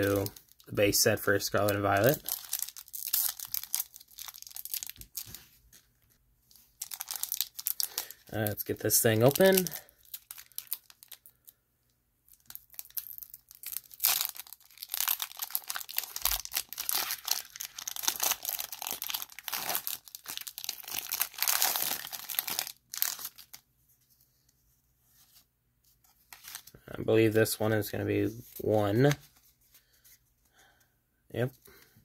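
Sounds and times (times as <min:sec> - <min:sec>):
foil wrapper tearing and crinkling: 0:00.0 - 0:05.5, 0:06.8 - 0:11.4, 0:12.4 - 0:23.6.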